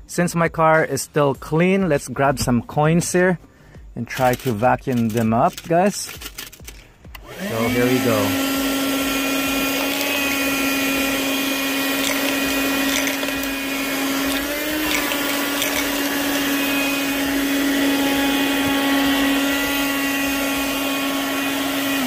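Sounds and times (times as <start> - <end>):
coins rattling into dust cup: 4.1 - 6.9, 12.0 - 13.5, 14.3 - 16.1
handheld vacuum motor whining: 6.7 - 22.0.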